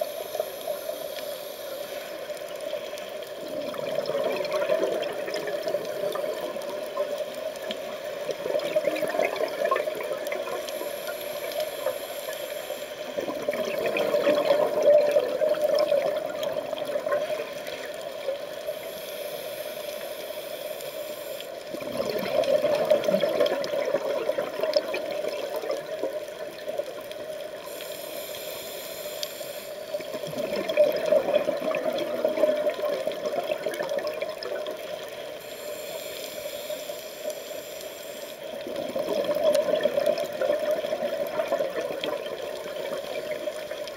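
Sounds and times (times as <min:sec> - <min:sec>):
underwater regulator bubbles: 0:03.4 - 0:12.1, 0:13.1 - 0:18.3, 0:21.7 - 0:26.8, 0:30.0 - 0:43.9.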